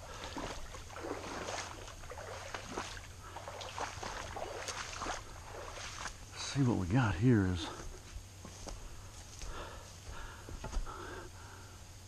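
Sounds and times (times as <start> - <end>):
footsteps squelching through wet ground: 0.0 - 6.8.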